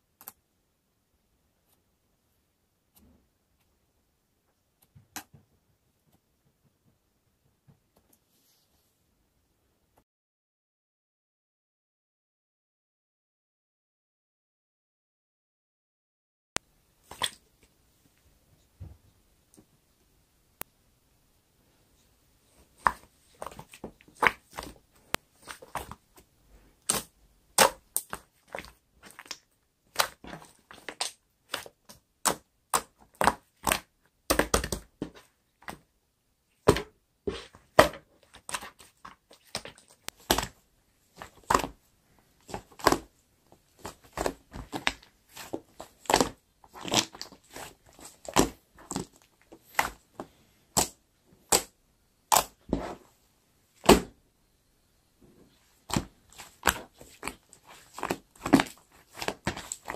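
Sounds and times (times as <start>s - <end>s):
slime squishing: 17.0s - 17.8s, 22.4s - 35.9s, 36.5s - 53.1s, 53.8s - 54.2s, 55.4s - 59.9s
slime popping and crackling: 22.8s - 24.8s, 26.8s - 35.0s, 36.6s - 41.8s, 42.4s - 43.1s, 43.7s - 51.7s, 55.8s - 59.9s.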